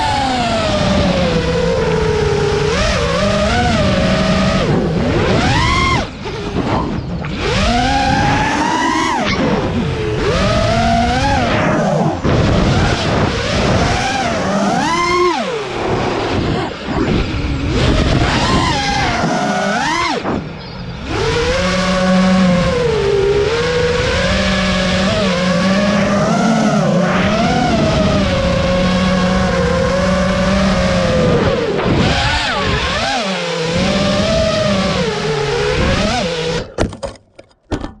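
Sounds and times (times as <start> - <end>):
drone motors whining: 0.0 - 37.0
dense rushing noise: 4.6 - 23.0
drone crashing and tumbling: 4.6 - 23.1, 30.3 - 33.0.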